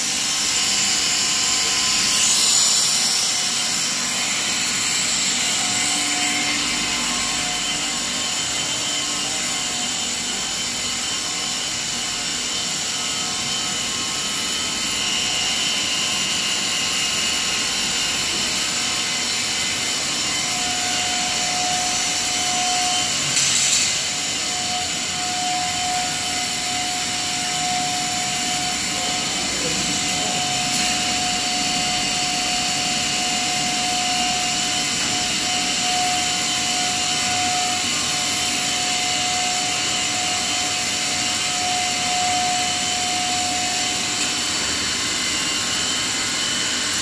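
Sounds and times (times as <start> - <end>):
drone of motors and fans: 0.0 - 47.0
machine whining tones: 0.0 - 47.0.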